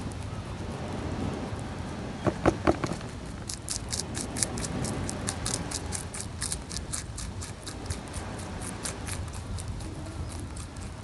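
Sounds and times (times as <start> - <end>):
rabbit crunching food: 0.0 - 11.0.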